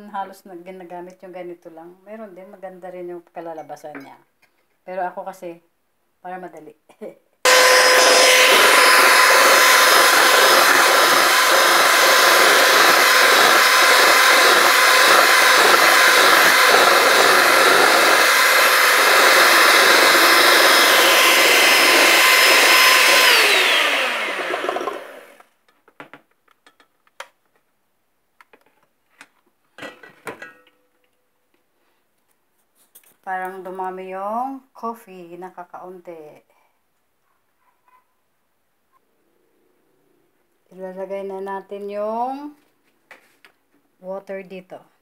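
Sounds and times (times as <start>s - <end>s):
electric hand mixer whining: 7.5s - 25.4s.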